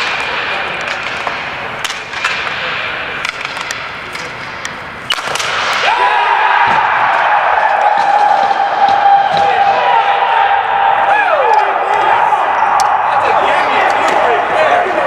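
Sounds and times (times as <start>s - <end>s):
hockey sticks clacking ball: 0.0s - 6.0s, 6.6s - 9.8s, 11.4s - 15.0s.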